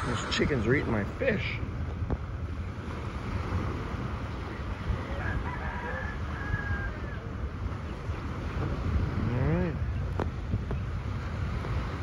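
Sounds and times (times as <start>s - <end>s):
surf washing: 0.0s - 12.0s
wind buffeting microphone: 0.0s - 12.0s
rooster crowing faintly: 5.0s - 7.3s.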